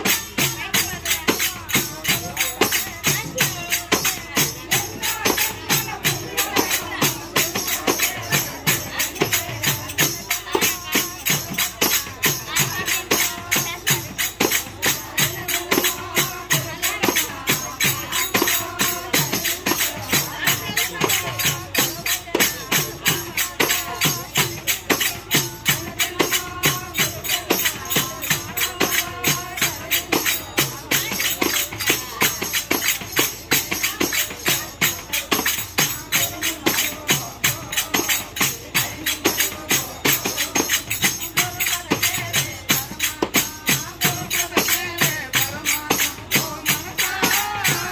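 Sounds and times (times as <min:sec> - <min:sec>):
group singing: 0:00.0 - 0:47.9
jingling percussion: 0:00.0 - 0:47.9.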